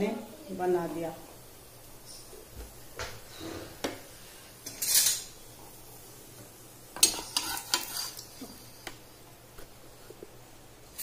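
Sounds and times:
metal utensil clinking on cookware: 4.6 - 5.3, 7.0 - 8.2.

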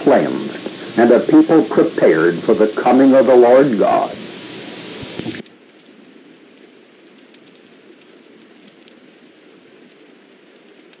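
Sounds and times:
steady hiss: 0.0 - 11.0
faint clicks: 5.0 - 11.0.

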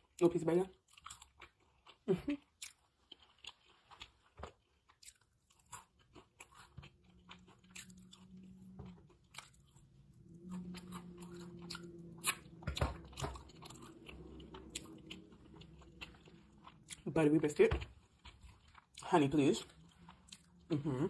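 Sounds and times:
chewing food: 0.0 - 21.0
person humming mmm: 20.7 - 21.0.

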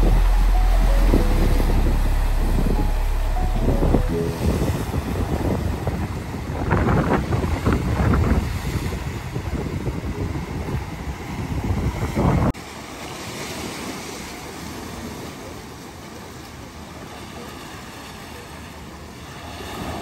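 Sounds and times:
sea surf and wind: 0.0 - 20.0
wind buffeting the microphone: 3.6 - 12.6.

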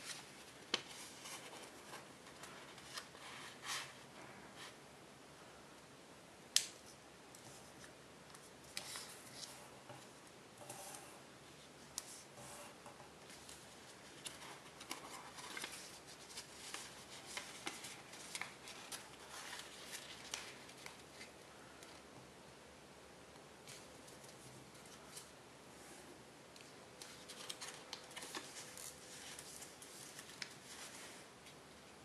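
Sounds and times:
paper crinkling as folded: 13.3 - 22.0, 27.0 - 31.6.

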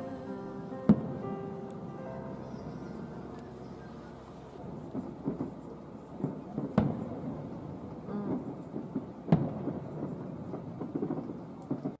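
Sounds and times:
low rumble of firework bursts: 0.0 - 12.0
firework bang: 0.9 - 1.2, 4.6 - 12.0.

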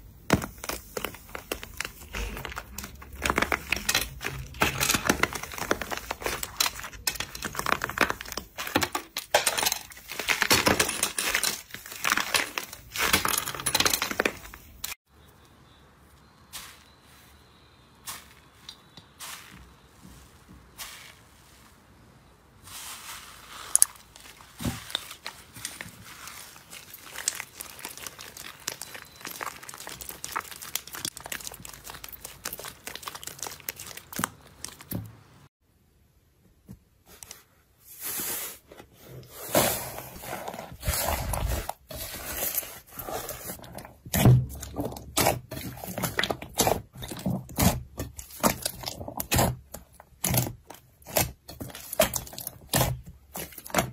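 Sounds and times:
slime crackling and crunching: 0.2 - 15.0, 22.6 - 35.0, 39.6 - 53.9.

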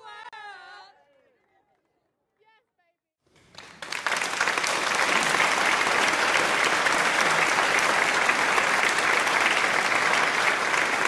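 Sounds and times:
applause: 3.3 - 11.0.

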